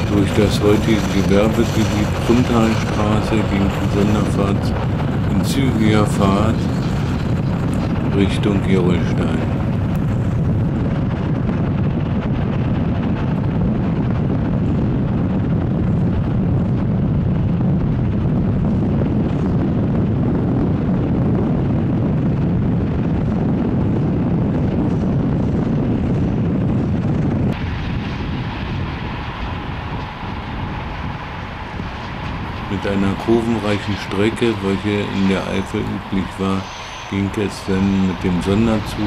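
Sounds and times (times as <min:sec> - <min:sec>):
train passing with low rumble: 0:27.5 - 0:39.0
distant train whine: 0:27.6 - 0:39.0.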